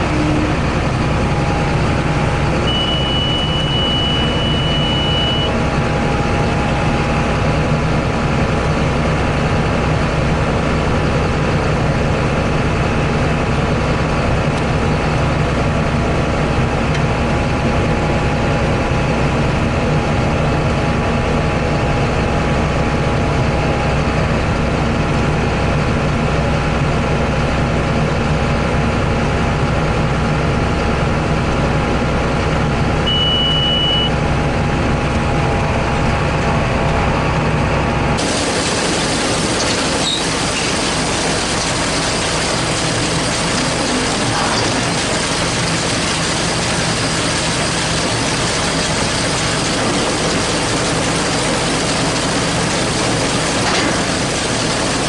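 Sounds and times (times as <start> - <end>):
tractor diesel engine running: 0.0 - 55.0
short high beep: 2.6 - 5.6, 33.0 - 34.2.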